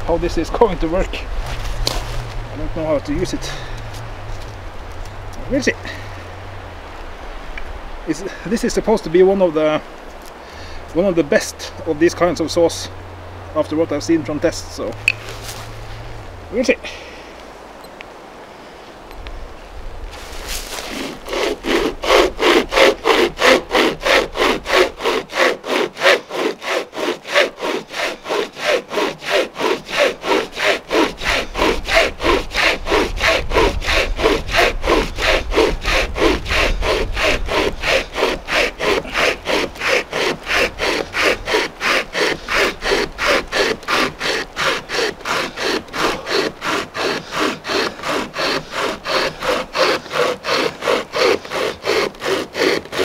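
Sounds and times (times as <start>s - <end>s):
hand chain saw cutting log: 0.0s - 6.2s, 13.6s - 16.7s, 20.2s - 53.0s.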